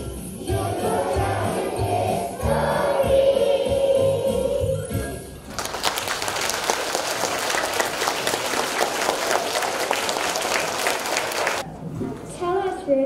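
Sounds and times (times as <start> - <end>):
audience applauding: 5.5 - 11.6.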